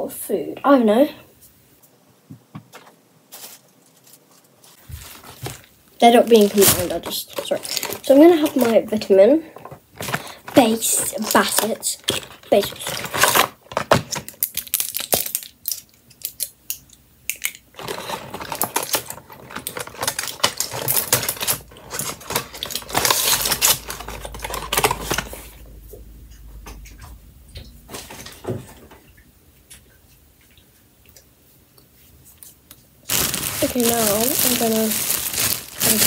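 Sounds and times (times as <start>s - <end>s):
rustling against microphone: 3.3s - 11.6s, 32.0s - 36.0s
blister pack crinkling: 3.3s - 16.5s, 17.3s - 25.6s, 33.1s - 36.0s.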